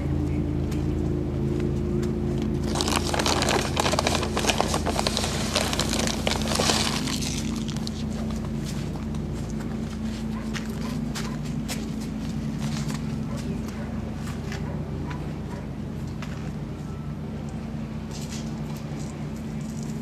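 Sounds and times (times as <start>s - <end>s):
low engine hum: 0.0s - 20.0s
dense crackling and crunching: 2.5s - 9.1s.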